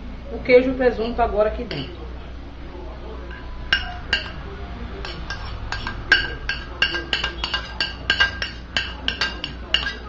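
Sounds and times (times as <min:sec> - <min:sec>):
spoon scraping a glass plate: 0:03.3 - 0:04.4, 0:05.0 - 0:10.0.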